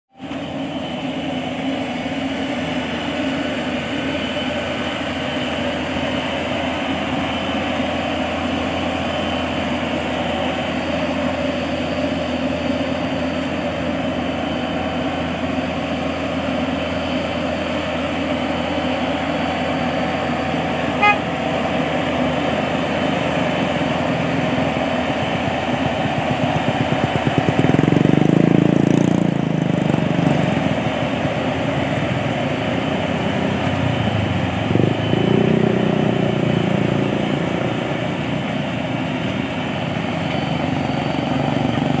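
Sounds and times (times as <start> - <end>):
diesel engine running: 0.2 - 42.0
short high beep: 21.0 - 21.2.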